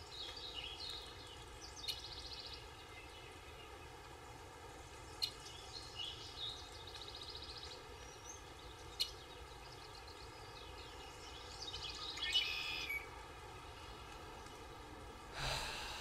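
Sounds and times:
faint steady hiss: 0.0s - 16.0s
birds chirping and trilling: 5.1s - 14.7s.

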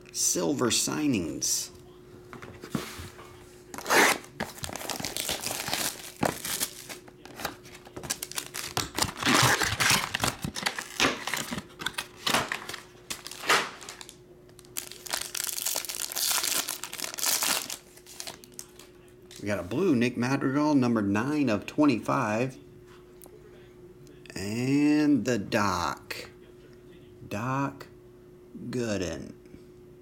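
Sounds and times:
foil wrapper crinkling and tearing: 3.8s - 18.9s.

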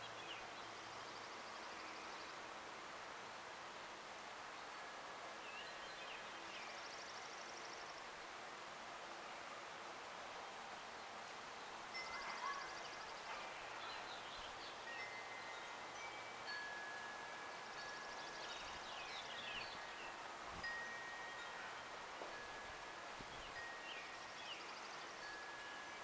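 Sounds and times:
wind chimes ringing: 11.9s - 13.5s, 14.8s - 26.0s.

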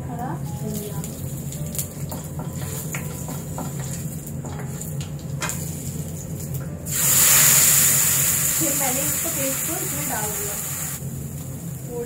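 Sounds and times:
spices frying in hot oil: 0.0s - 12.0s
loud hiss of paste in oil: 6.9s - 11.0s.

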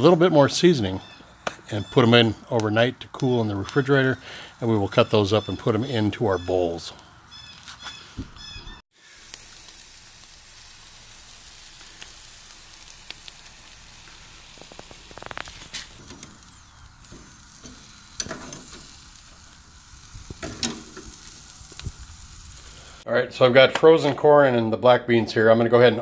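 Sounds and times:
meat sizzling on a grill: 1.6s - 7.7s, 8.9s - 23.1s.

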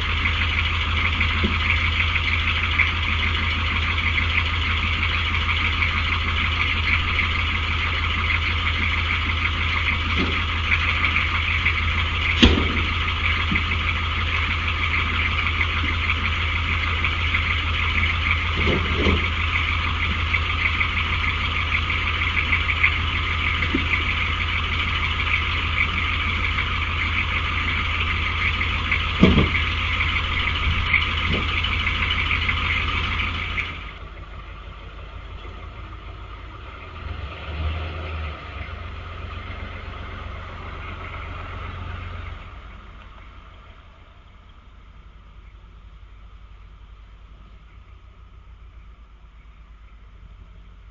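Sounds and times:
pickup truck driving off: 0.0s - 50.9s
pickup truck engine idling: 0.0s - 50.9s
short knocks: 29.2s - 29.6s.

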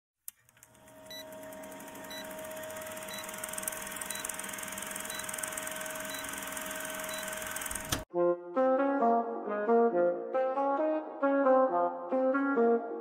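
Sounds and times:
film projector whirr with crackle: 0.3s - 8.1s.

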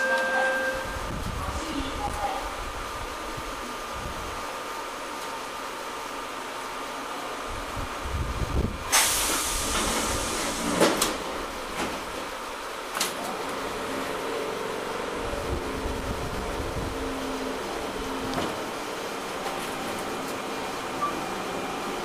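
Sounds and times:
faint train hum: 0.0s - 22.0s
compressed air hiss: 8.9s - 10.8s
train doors thudding shut: 8.9s - 13.4s, 18.1s - 20.4s.

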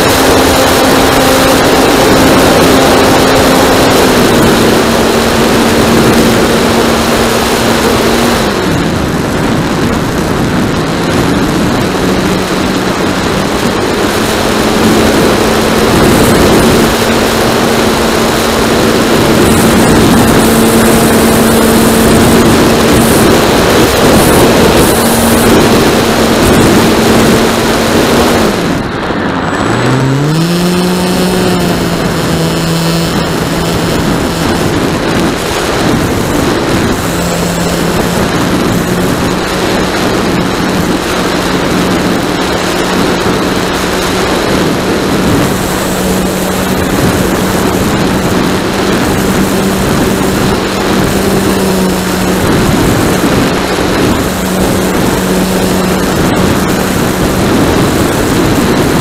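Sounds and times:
model plane motor humming: 0.0s - 59.0s
wind rush over microphone: 0.0s - 59.0s.

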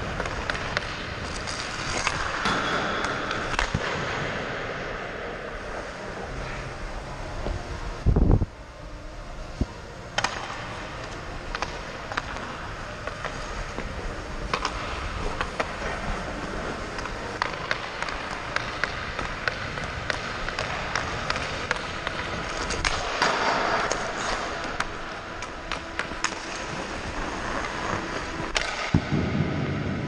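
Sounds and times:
stick tapping ice and puck: 0.0s - 4.6s, 10.1s - 29.2s
loud skate scrape: 0.0s - 7.0s, 10.2s - 30.0s
skates gliding on ice: 0.0s - 30.0s.

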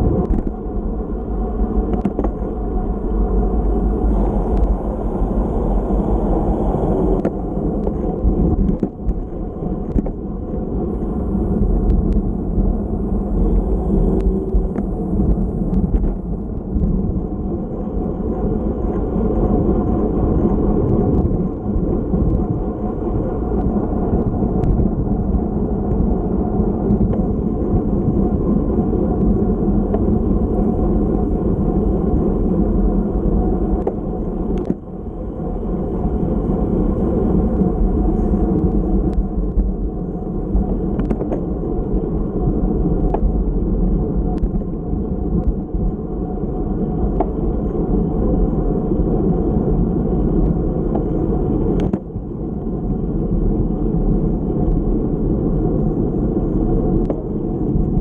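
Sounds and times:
bicycle road rumble: 0.0s - 58.0s
wind rush: 0.0s - 58.0s.

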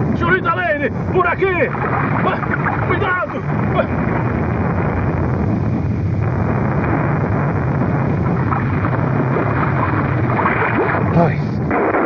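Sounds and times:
volcano erupting low rumble: 0.0s - 12.0s.

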